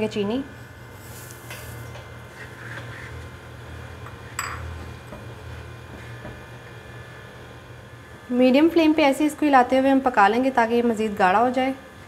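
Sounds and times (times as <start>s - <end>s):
spoon stirring and scraping pan: 1.0s - 3.3s.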